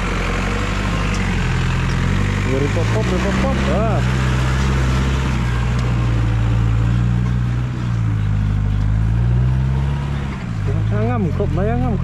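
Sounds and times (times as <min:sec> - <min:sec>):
motorcycle engine running: 0:00.0 - 0:08.9.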